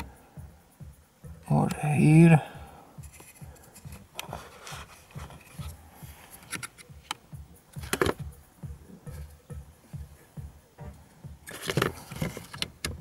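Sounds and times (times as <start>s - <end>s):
hands handling parts clicking: 3.0s - 8.3s, 11.4s - 13.0s.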